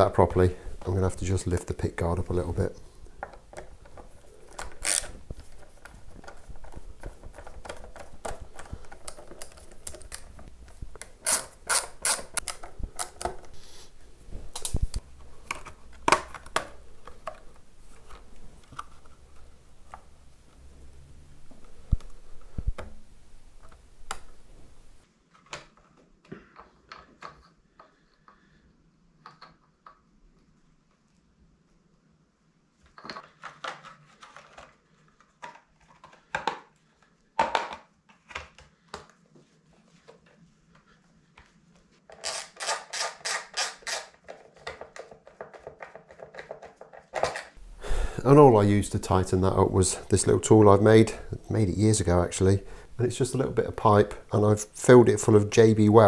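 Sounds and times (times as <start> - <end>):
screwdriver clicking on screws: 11.1 - 13.3, 42.2 - 44.2.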